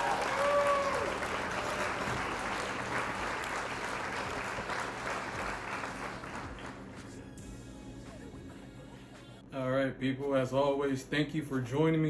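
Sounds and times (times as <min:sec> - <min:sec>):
many hands clapping: 0:00.0 - 0:07.2.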